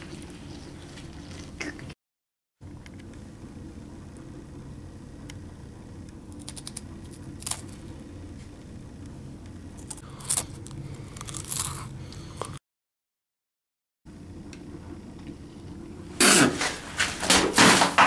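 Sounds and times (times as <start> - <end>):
cracker crunching: 6.2 - 9.1, 9.7 - 12.6.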